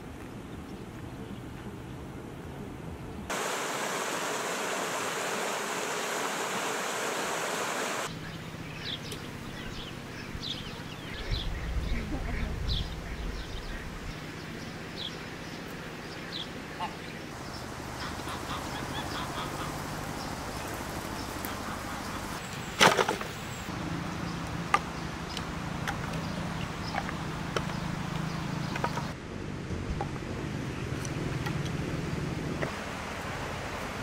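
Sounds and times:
small birds chirping: 0:06.8 - 0:29.2
firewood thrown onto ground: 0:22.8 - 0:23.3.

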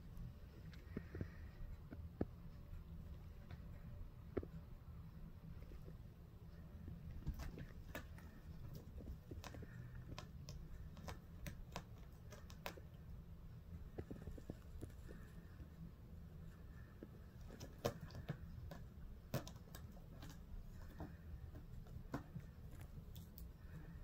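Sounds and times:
low steady hum: 0:00.0 - 0:24.0
kitten claws scratching fabric: 0:07.1 - 0:13.2, 0:16.4 - 0:23.5.

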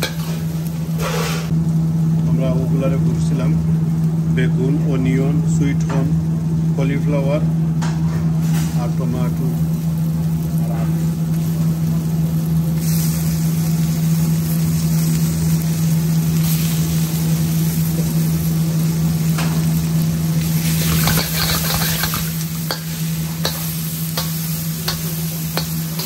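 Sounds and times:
metal spoon scraping a wok: 0:00.0 - 0:01.5, 0:20.7 - 0:26.0
oil sizzling in a wok: 0:00.0 - 0:04.4, 0:08.3 - 0:26.0.

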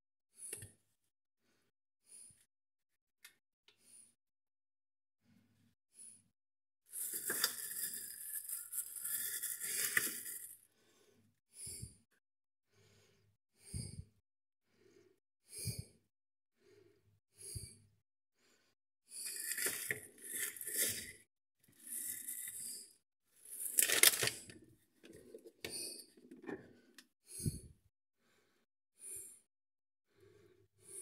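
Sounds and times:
plastic packaging crinkling: 0:23.6 - 0:24.4.

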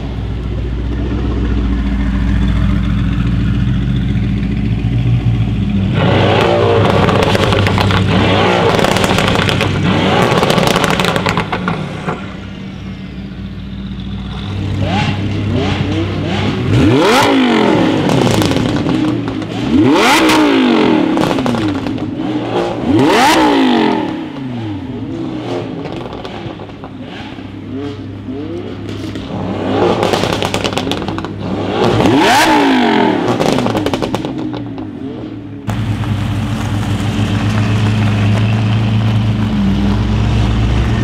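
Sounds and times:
sports car engine idling and revving: 0:00.0 - 0:41.0
exhaust crackles and pops: 0:06.0 - 0:12.3, 0:18.0 - 0:20.3, 0:21.1 - 0:22.2, 0:25.6 - 0:27.0, 0:28.8 - 0:32.5, 0:33.2 - 0:35.0, 0:35.6 - 0:41.0.

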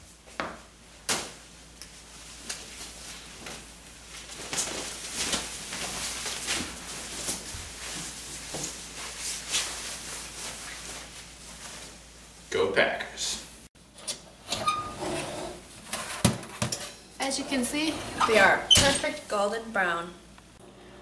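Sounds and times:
clothing rustling: 0:02.0 - 0:12.1.

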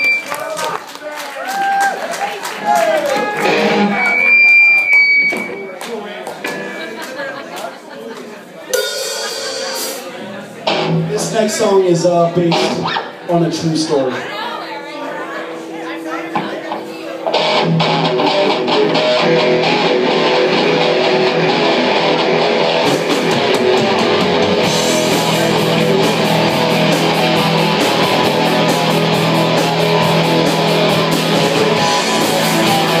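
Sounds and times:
live rock band: 0:03.1 - 0:05.7, 0:08.7 - 0:14.2, 0:16.3 - 0:33.0
electric guitar: 0:03.2 - 0:05.6, 0:10.6 - 0:11.6, 0:12.4 - 0:13.2, 0:15.5 - 0:33.0.

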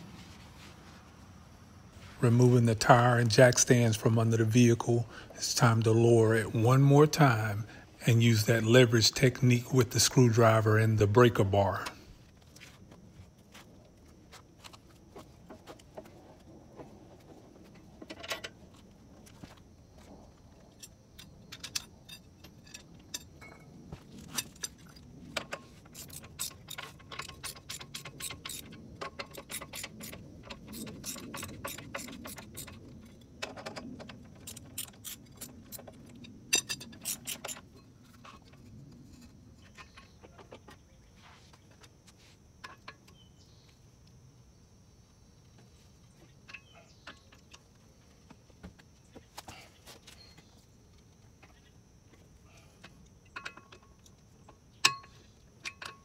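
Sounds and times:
metal tools clicking and clinking: 0:20.7 - 0:40.2, 0:53.2 - 0:56.0.

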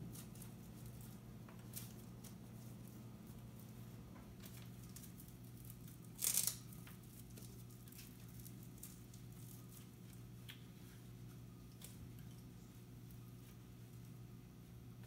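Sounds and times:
hook-and-loop strap ripping open: 0:06.1 - 0:06.8.

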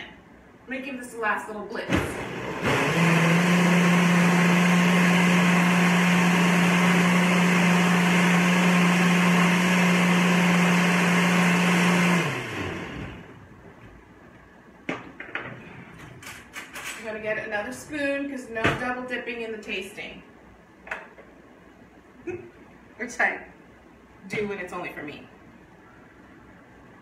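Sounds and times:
blender running: 0:02.0 - 0:13.4.

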